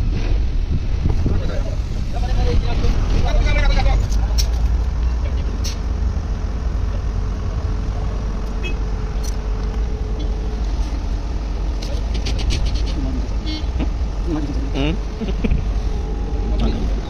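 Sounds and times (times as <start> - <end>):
road traffic rumble: 0.0 - 17.0
faint engine tone: 6.4 - 17.0.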